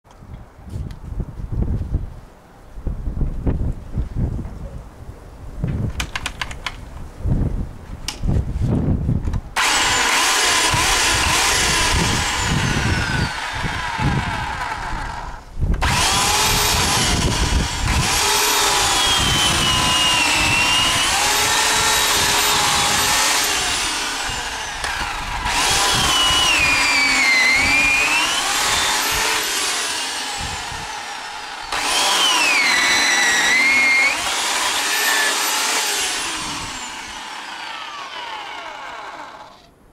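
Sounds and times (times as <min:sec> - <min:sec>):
electric chainsaw sawing log: 0:09.6 - 0:39.8.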